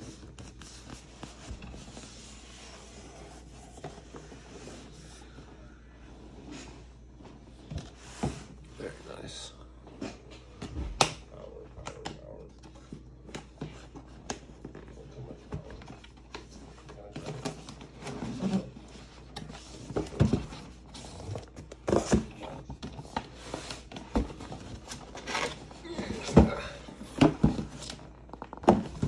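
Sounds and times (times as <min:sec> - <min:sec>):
cardboard scraping and rustling: 0:00.0 - 0:05.3, 0:13.4 - 0:29.0.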